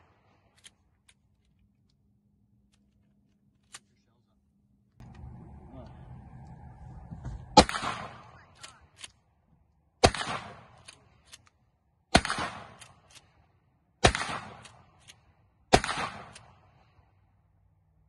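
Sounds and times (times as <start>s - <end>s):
shotgun shots with echo: 7.5s - 8.8s, 10.0s - 10.9s, 12.1s - 13.1s, 14.0s - 15.0s, 15.7s - 16.8s.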